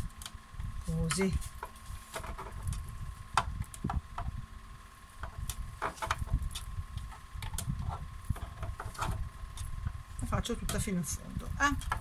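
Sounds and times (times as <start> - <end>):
small clicks and knocks: 5.2 - 9.8.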